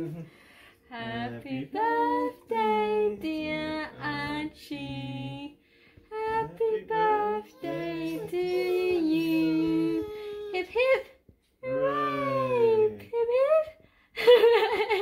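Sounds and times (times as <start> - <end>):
person singing sustained notes: 6.2 - 10.1.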